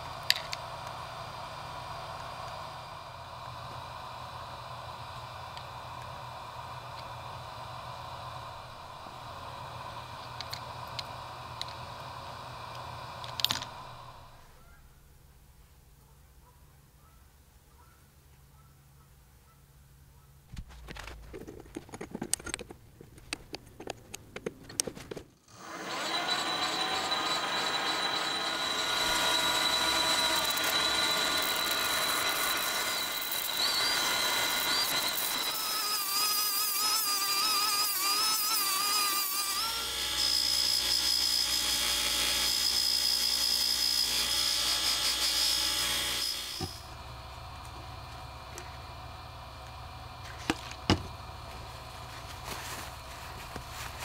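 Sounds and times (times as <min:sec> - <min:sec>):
buffing wheel hum: 0:00.0 - 0:14.7, 0:46.4 - 0:54.0
rotary tool whining: 0:00.0 - 0:14.7, 0:24.8 - 0:54.0
lathe running: 0:00.2 - 0:14.4, 0:25.5 - 0:54.0.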